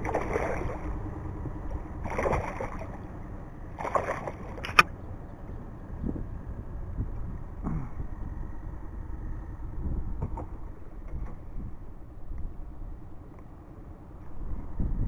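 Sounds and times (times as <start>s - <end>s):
water splashes: 0.0s - 4.9s
steady low rumble: 0.0s - 15.0s.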